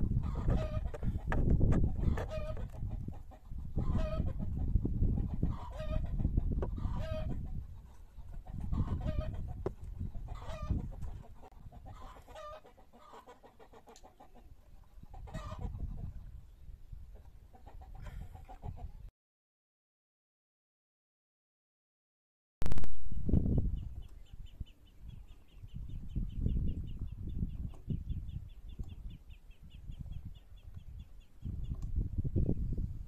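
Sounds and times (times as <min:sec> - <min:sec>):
chickens clucking: 0:00.1 - 0:16.4, 0:17.1 - 0:19.1.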